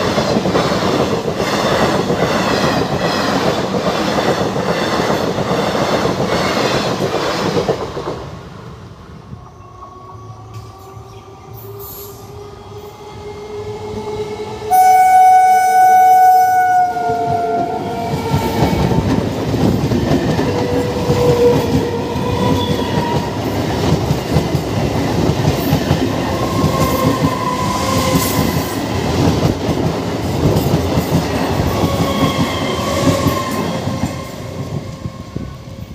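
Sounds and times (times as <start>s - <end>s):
train wheels rumbling on track: 0.0s - 9.4s, 17.0s - 35.9s
train horn blast: 14.7s - 18.0s.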